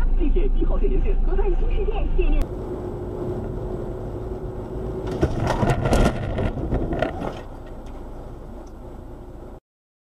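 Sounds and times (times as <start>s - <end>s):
car cabin road noise: 0.0s - 9.6s
car crash bangs and crunches: 5.0s - 7.7s.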